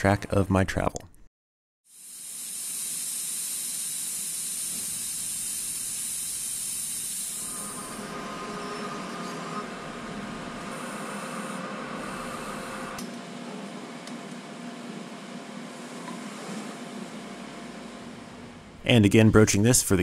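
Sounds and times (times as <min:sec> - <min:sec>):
lathe hissing: 0:02.0 - 0:13.0
lathe humming with faint whine: 0:07.5 - 0:16.2.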